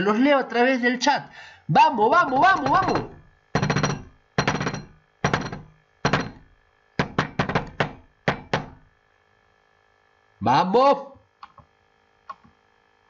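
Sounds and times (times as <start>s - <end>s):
rhythmic thumps and knocks: 2.2s - 8.9s.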